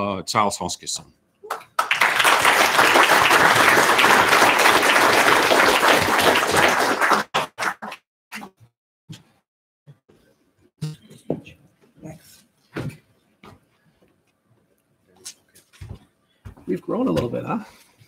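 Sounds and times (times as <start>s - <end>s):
audience applauding: 1.5s - 8.0s.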